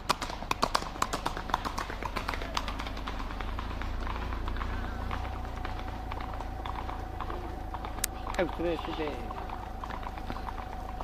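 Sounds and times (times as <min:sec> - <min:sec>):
hooves clopping on gravel: 0:00.0 - 0:11.0
low rumble: 0:01.5 - 0:11.0.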